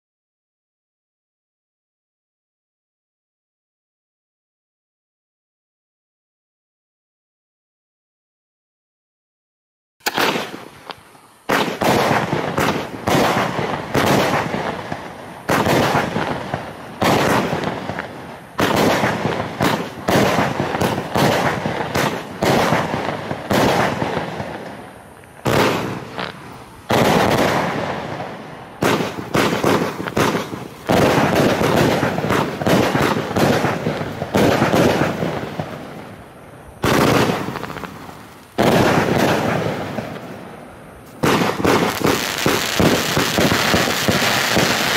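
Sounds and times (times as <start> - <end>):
firework bursts crackling: 10.0 - 44.9
firework shots launching: 10.0 - 44.9.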